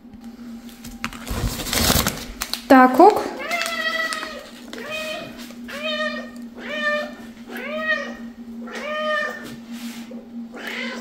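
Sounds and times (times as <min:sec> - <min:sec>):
cat meowing: 0:03.4 - 0:09.5, 0:10.6 - 0:11.0.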